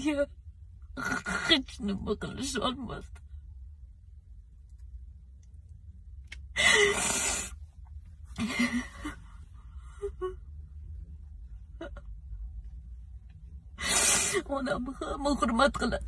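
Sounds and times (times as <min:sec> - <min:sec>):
woman sobbing: 0:08.4 - 0:09.2, 0:09.9 - 0:10.4.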